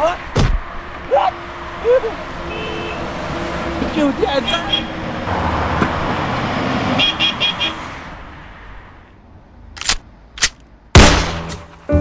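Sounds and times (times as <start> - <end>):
car driving off: 1.5 - 7.0
car horn toots: 2.5 - 3.1, 7.0 - 7.8.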